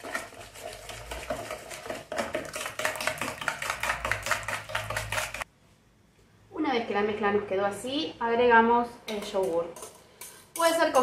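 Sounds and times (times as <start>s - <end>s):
whisk beating batter in bowl: 0.0s - 5.5s.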